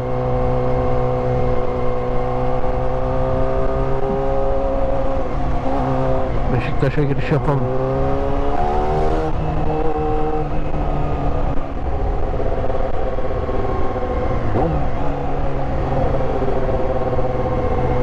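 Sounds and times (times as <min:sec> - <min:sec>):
motorcycle engine accelerating: 0:00.0 - 0:06.6, 0:07.5 - 0:18.0
road and wind noise: 0:00.0 - 0:18.0.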